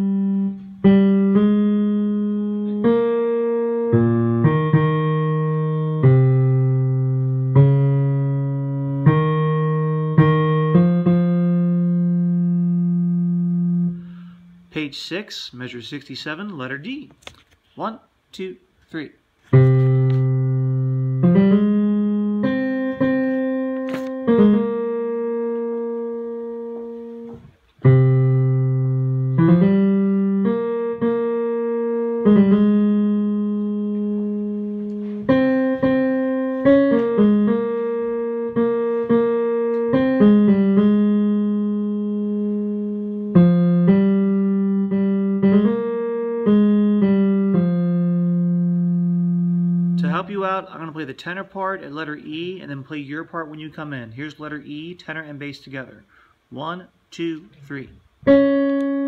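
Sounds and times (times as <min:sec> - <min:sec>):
slow piano melody: 0:00.0 - 0:14.8, 0:19.5 - 0:50.9, 0:58.2 - 0:59.0.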